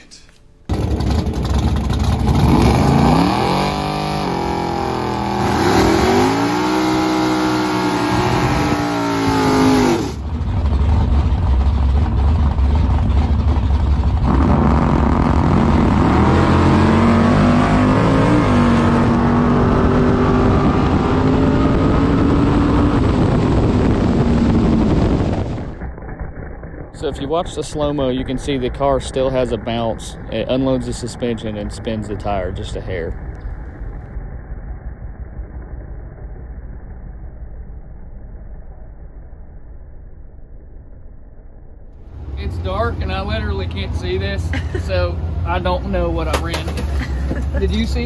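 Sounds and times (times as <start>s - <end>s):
low engine rumble: 0.0s - 48.0s
race car engine revving: 0.7s - 25.6s
full-throttle engine pass: 0.7s - 36.9s.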